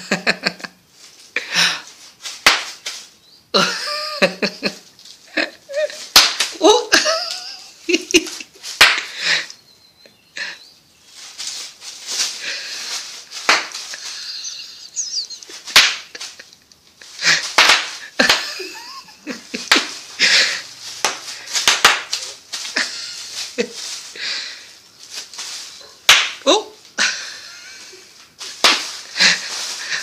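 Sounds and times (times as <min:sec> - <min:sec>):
bubble wrap popping: 0:01.9 - 0:03.2, 0:05.9 - 0:09.2, 0:11.0 - 0:24.2, 0:24.9 - 0:27.0, 0:28.2 - 0:30.0
child laughing: 0:03.6 - 0:08.6, 0:13.9 - 0:17.4, 0:18.0 - 0:20.4.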